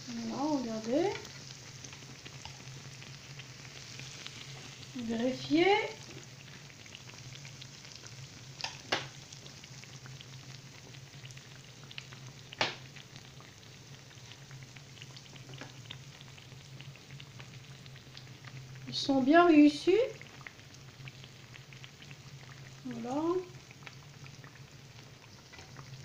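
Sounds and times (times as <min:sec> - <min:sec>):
dough frying in hot oil: 0:00.0 - 0:26.0.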